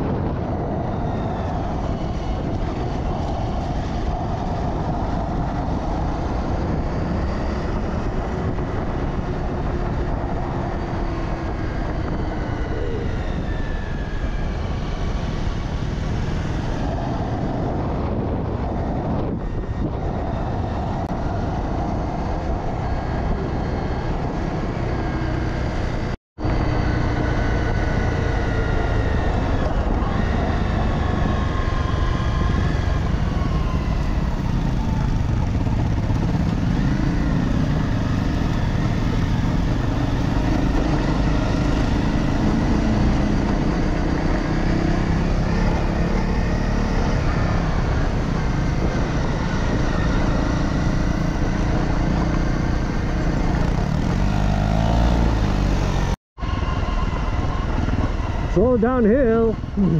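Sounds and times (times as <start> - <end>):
dirt bike engine revving: 24.7 - 56.2.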